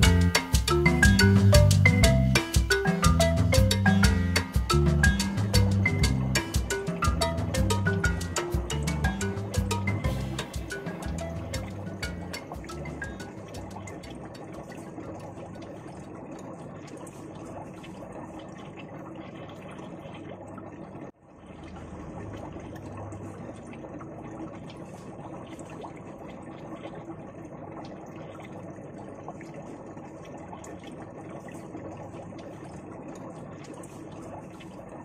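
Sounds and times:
aquarium water bubbling: 0.0 - 35.0.

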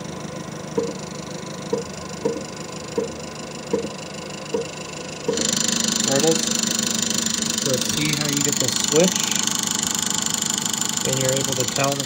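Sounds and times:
mill spindle humming: 0.0 - 12.0
stepper motor chirps: 0.7 - 12.0.

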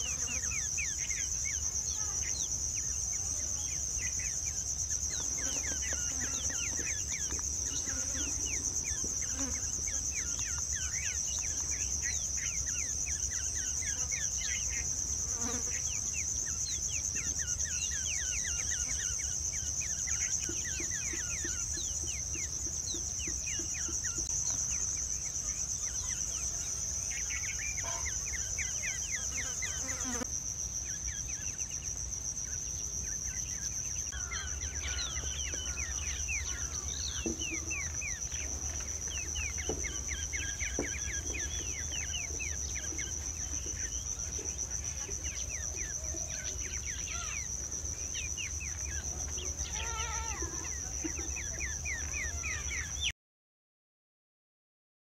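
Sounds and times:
bird calls: 0.0 - 53.1
high-pitched insect drone: 0.0 - 53.1.

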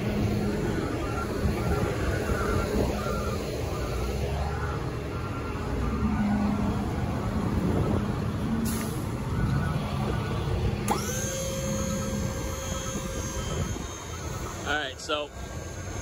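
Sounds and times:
hydraulic pump humming: 10.8 - 16.0.

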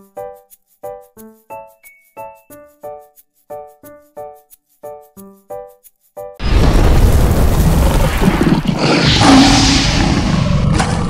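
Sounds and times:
light melody of short notes: 0.0 - 6.4.

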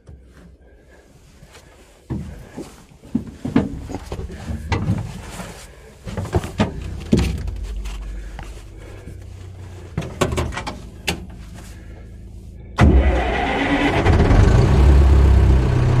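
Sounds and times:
tractor diesel engine running: 0.0 - 16.0
clanks and knocks from load: 10.0 - 11.3.

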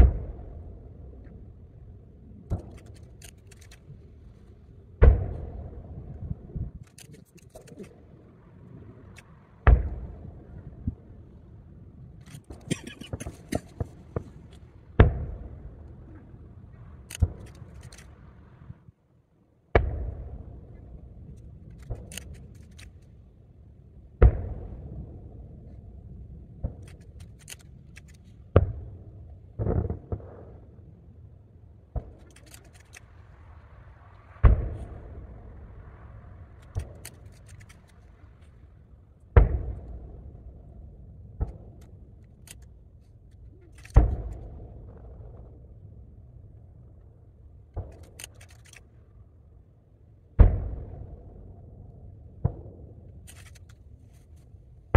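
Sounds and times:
distant firework booms with echo: 0.0 - 1.1, 5.0 - 6.5, 9.6 - 11.1, 13.1 - 16.2, 19.8 - 20.7, 24.2 - 25.5, 28.5 - 30.8, 34.4 - 35.8, 39.3 - 41.8, 50.4 - 51.6.

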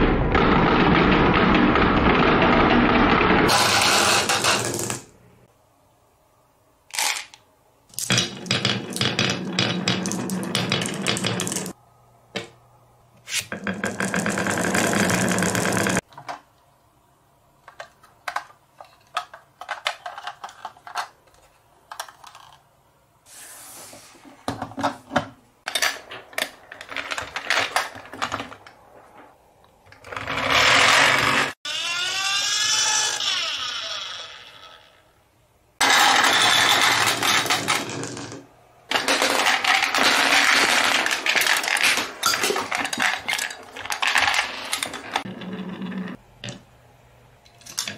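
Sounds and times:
glass marbles rolling on wood: 8.0 - 11.8, 13.6 - 16.0
plastic toy trucks rattling: 17.7 - 22.6, 35.8 - 45.3.

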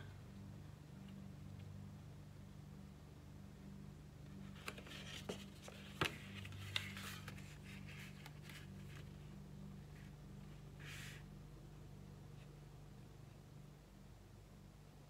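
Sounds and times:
steady low hum: 0.0 - 15.0
cardstock rustling: 4.4 - 9.2.

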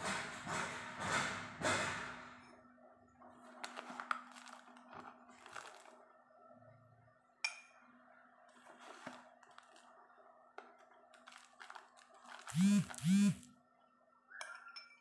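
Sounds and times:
foil pouch crinkling: 3.6 - 6.0, 8.8 - 10.0, 11.1 - 13.5
spoon scraping powder: 8.5 - 10.0, 11.2 - 13.5
spoon clinking on glass: 14.4 - 15.0.

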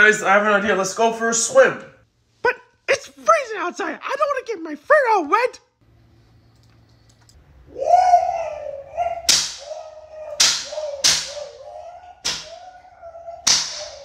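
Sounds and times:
high-pitched wailing cry: 7.7 - 14.0
belt lashes cracking: 9.3 - 9.8, 10.4 - 11.5, 13.5 - 14.0.

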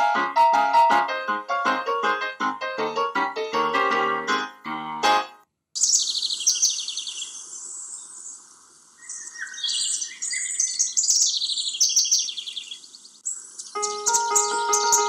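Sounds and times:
songbirds chirping trills: 5.8 - 15.0.

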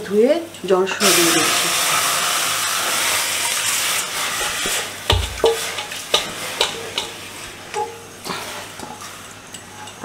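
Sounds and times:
steel bowl clinking on pot: 4.4 - 7.2.

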